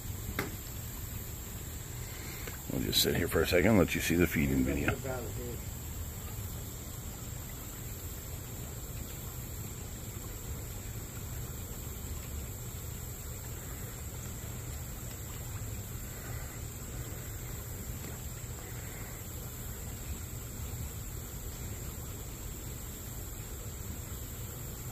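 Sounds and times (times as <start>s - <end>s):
high insect drone: 0.0s - 24.9s.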